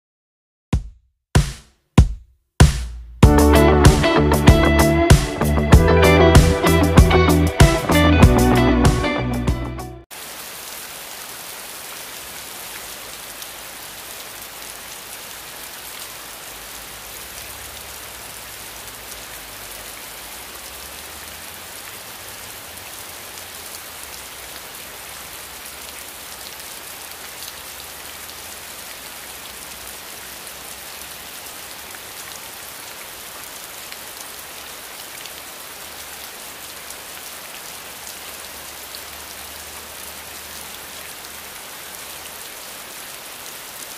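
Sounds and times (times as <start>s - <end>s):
steady rain: 10.1s - 43.9s.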